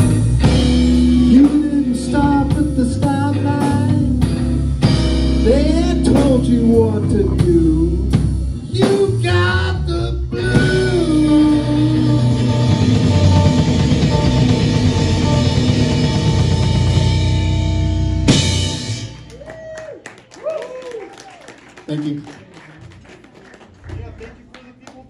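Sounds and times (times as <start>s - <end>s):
electric guitar lead: 0.0s - 19.4s
bass guitar: 0.0s - 19.8s
drum kit: 0.0s - 19.8s.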